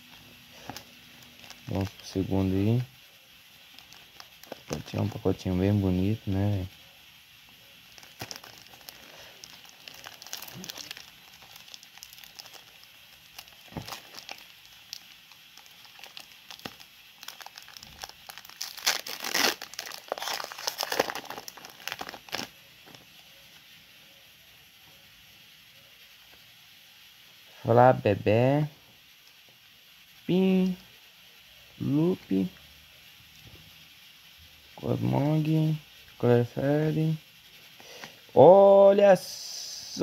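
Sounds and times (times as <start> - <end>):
foil wrapper crinkling and tearing: 0.0 - 2.9, 3.6 - 6.7, 7.8 - 23.1.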